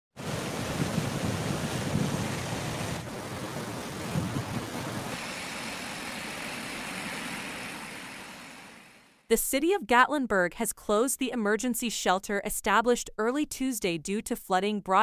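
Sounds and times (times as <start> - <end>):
floodwater rushing: 0.2 - 9.1.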